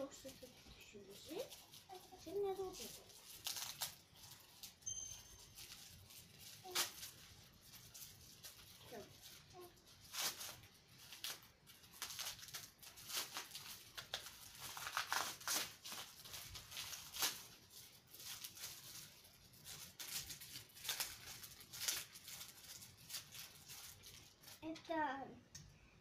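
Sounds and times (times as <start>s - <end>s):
plastic bag crinkling: 0.0s - 25.0s.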